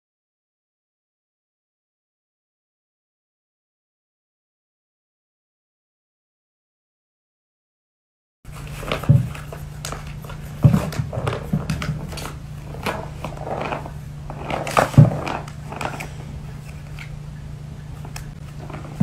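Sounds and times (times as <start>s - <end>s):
steady low hum: 8.5s - 19.0s.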